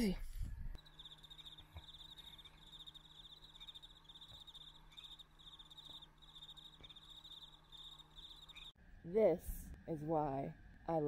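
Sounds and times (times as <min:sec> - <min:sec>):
faint cricket trills: 0:00.8 - 0:08.8.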